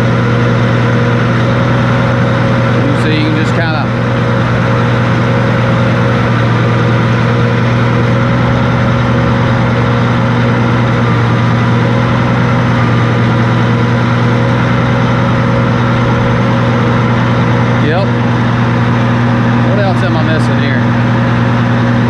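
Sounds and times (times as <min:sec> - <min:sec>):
diesel engine humming steadily: 0:00.0 - 0:22.0.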